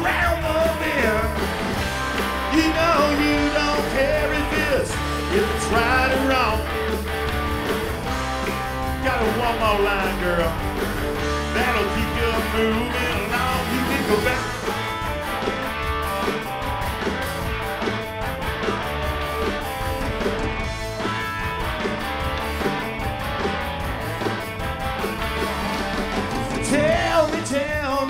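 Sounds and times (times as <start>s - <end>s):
man singing lead vocals: 0.0s - 1.5s, 2.4s - 7.0s, 8.9s - 14.8s, 26.5s - 28.0s
rock band playing: 0.0s - 28.0s.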